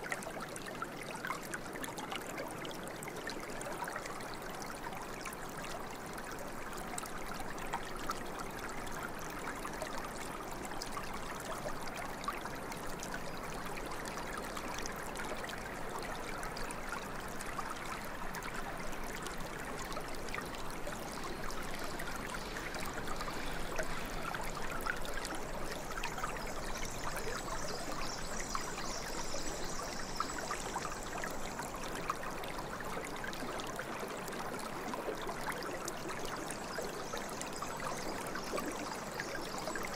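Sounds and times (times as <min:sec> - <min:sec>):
stream water trickling: 0:00.0 - 0:39.9.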